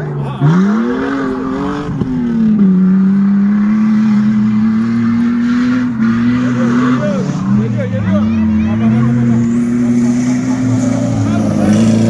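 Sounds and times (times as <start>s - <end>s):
engine revving hard: 0.0s - 12.0s.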